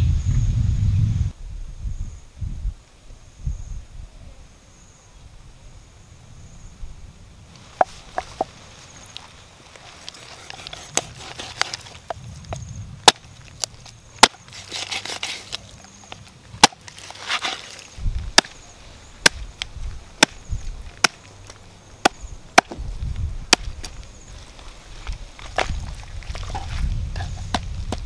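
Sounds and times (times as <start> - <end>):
knife chopping on wooden board: 10.4 - 11.8.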